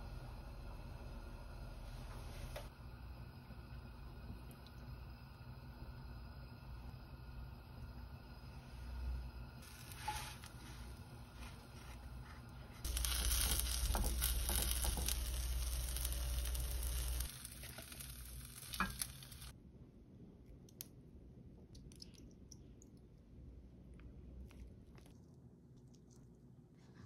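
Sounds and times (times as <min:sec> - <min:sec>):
food sizzling in a frying pan: 0:09.6 - 0:11.9, 0:12.8 - 0:19.5.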